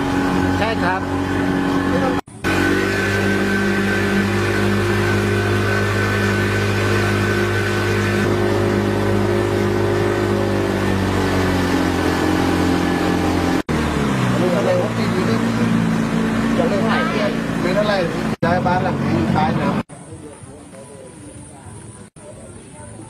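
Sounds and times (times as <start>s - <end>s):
boat engine running: 0.0s - 23.0s.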